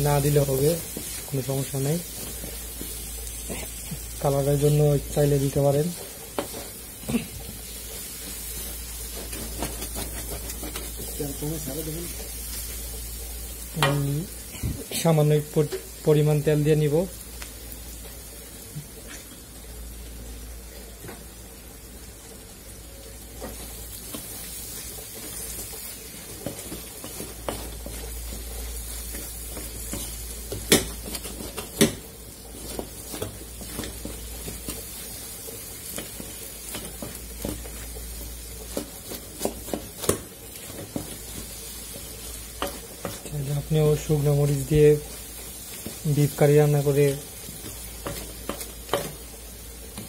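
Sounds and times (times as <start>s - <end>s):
masala sizzling in oil: 0.0s - 50.0s
spatula scraping pan: 8.3s - 11.2s, 26.3s - 35.2s
spatula knocking against pan: 30.5s - 31.0s.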